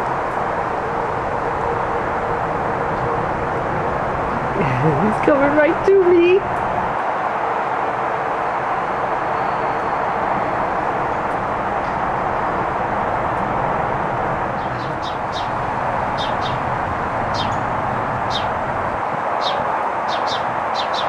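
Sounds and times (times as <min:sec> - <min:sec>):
steady rushing noise: 0:00.0 - 0:21.0
high bird chirps: 0:14.6 - 0:16.6, 0:17.3 - 0:17.6, 0:19.4 - 0:21.0.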